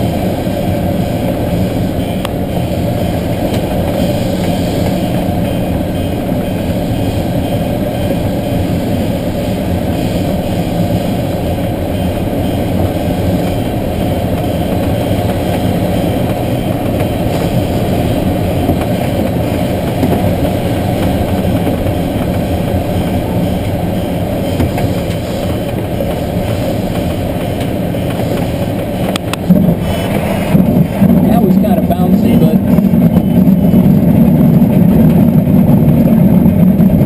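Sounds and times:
air rushing over glider canopy: 0:00.0 - 0:37.0.

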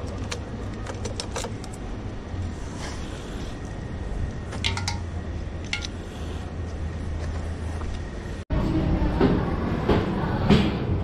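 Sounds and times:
plastic clicks and rattles: 0:00.0 - 0:01.8.

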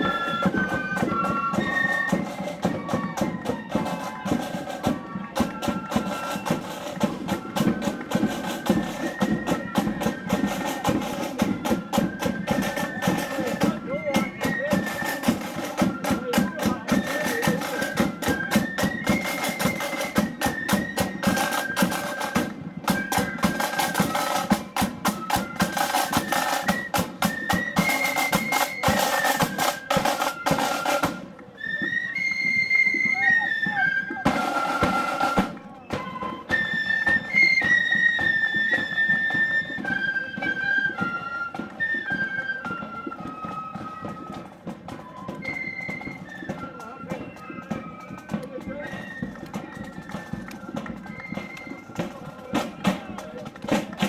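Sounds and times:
marching flute band: 0:00.0 - 0:54.0
side drum beating: 0:34.1 - 0:36.4, 0:47.2 - 0:54.0.

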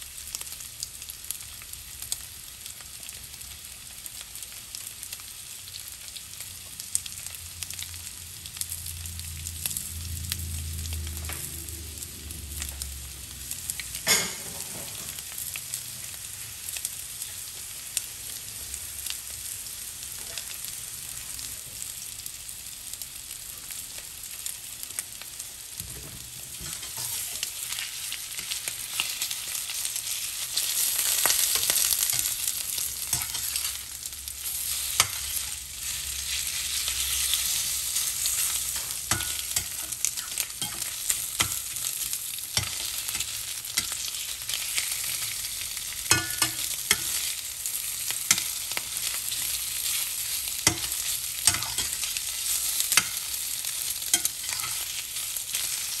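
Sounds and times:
chicken sizzling in hot oil: 0:00.0 - 0:56.0
metal spatula scraping a pan: 0:26.5 - 0:29.3, 0:30.6 - 0:33.8, 0:34.4 - 0:41.8, 0:46.0 - 0:47.5, 0:48.2 - 0:56.0.

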